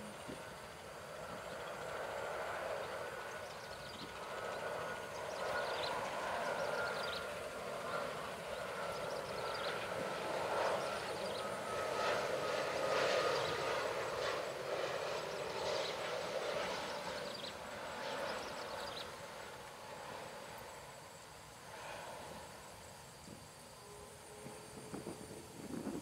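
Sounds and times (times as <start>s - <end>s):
jet engine roar with whine: 0.0s - 26.0s.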